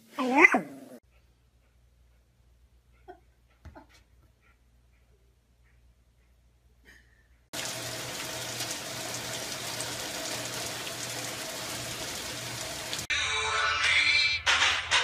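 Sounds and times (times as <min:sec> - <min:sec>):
rush of running water: 0:07.6 - 0:13.1.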